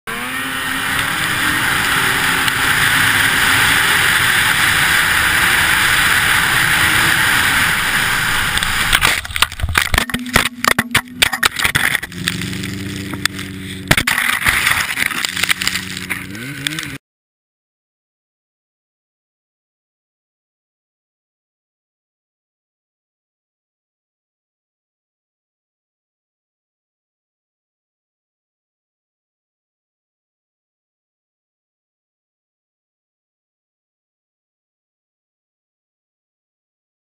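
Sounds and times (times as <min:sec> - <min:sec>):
snowmobile engine running: 0:00.1 - 0:17.0
knocks and thumps of crash: 0:08.9 - 0:12.4, 0:13.9 - 0:16.3.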